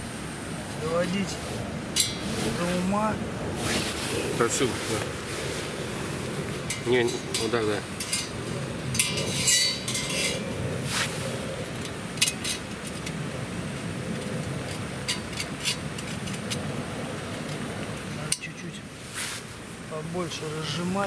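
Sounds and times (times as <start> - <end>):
rushing background noise: 0.0 - 21.0
metal cookware clinking: 9.0 - 10.4.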